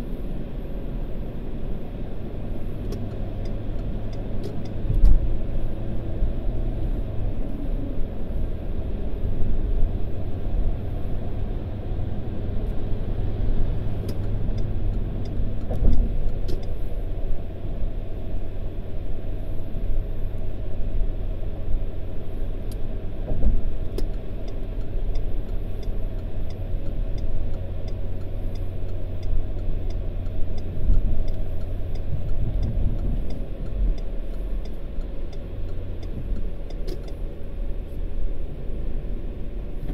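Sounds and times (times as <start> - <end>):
car cabin road rumble: 0.0 - 39.9.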